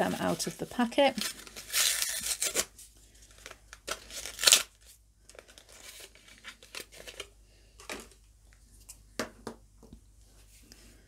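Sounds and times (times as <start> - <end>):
packaging rustling: 0.2 - 8.2
packaging being torn open: 1.2 - 2.7, 3.4 - 7.3.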